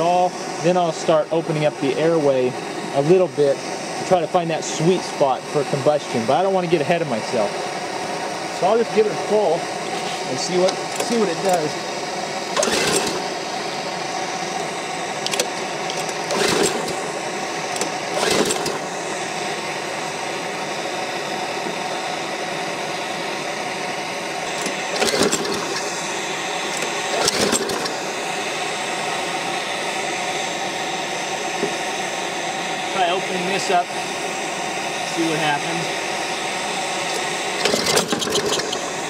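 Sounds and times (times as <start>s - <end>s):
recoil starter cranking: 9.9s - 11.8s, 12.5s - 19.0s, 24.4s - 28.1s, 37.0s - 39.0s.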